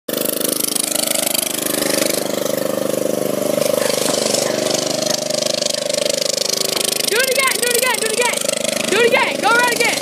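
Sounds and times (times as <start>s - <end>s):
riding lawn mower engine running: 0.1s - 10.0s.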